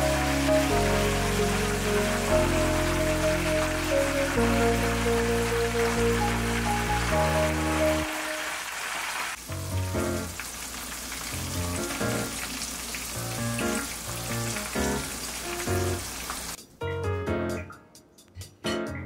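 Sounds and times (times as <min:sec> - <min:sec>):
keyboard chords over bass line: 0:00.0 - 0:08.3
crackling sizzle: 0:00.0 - 0:16.6.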